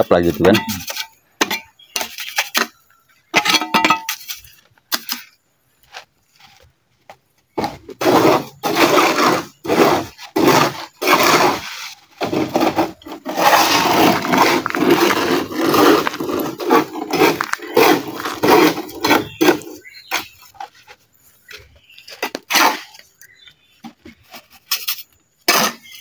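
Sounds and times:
shovel scraping wet concrete: 0:00.1 - 0:02.7, 0:07.6 - 0:20.6, 0:22.2 - 0:23.0, 0:24.4 - 0:26.0.

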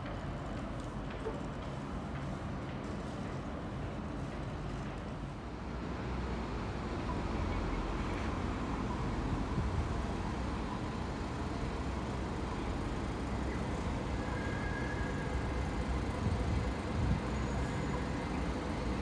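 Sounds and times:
street traffic rumble: 0:00.0 - 0:19.0.

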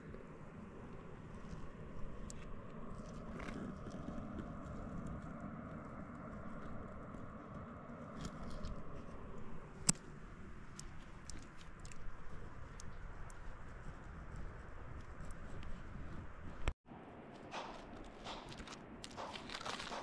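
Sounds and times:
rock and gravel shifting: 0:17.8 - 0:20.0.

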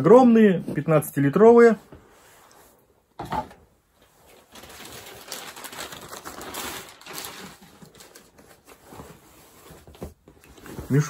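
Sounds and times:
plastic packaging rustling: 0:04.0 - 0:11.0.

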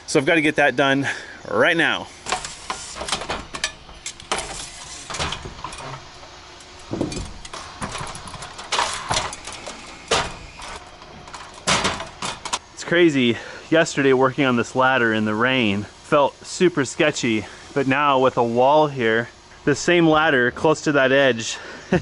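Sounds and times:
small rattles: 0:02.2 - 0:12.6
knocks on metal ladder rungs: 0:02.3 - 0:12.6.

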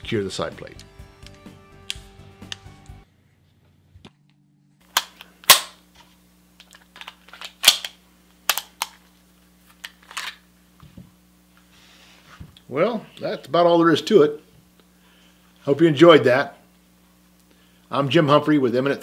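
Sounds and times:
pistol mechanism clicking: 0:04.9 - 0:05.8, 0:07.0 - 0:09.0.

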